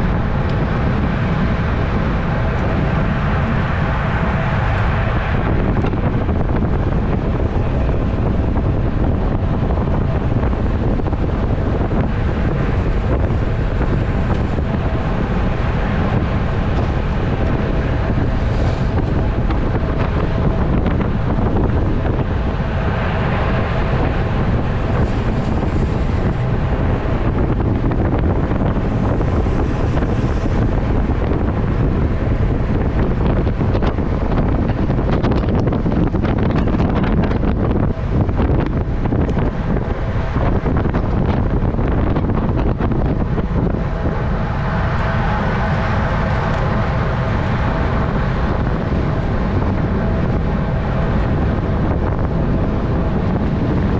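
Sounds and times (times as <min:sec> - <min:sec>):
wind rushing over microphone: 0:00.0 - 0:53.9.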